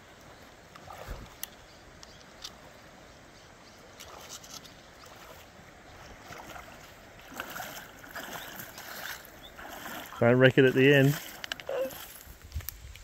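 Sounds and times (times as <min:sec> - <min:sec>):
water sloshing around wading legs: 0:00.3 - 0:01.6, 0:03.9 - 0:12.6.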